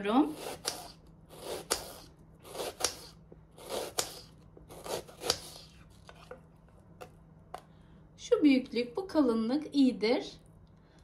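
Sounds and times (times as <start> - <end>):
knife slicing onion on cutting board: 0.1 - 5.8.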